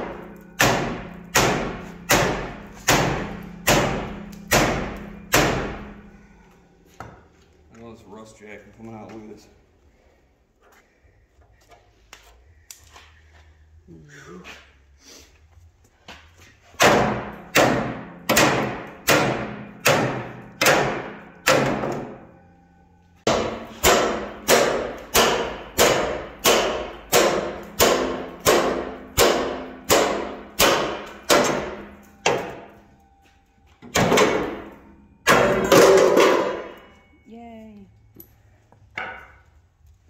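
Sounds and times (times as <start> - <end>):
hammer striking steel: 0.0 - 7.2, 16.8 - 22.5, 23.1 - 37.2, 38.9 - 39.5.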